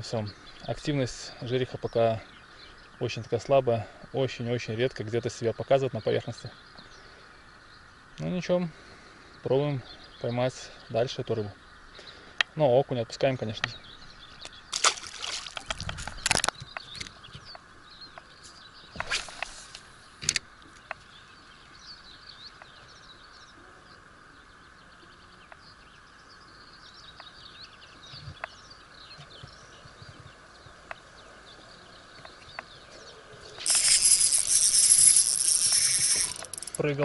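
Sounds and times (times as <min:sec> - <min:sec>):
birds twittering faintly: 0:00.0 - 0:37.0
fishing reel whirring: 0:33.6 - 0:36.9.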